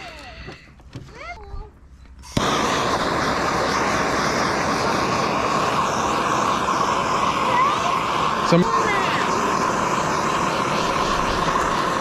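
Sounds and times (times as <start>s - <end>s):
gas blowtorch hissing: 2.2s - 12.0s.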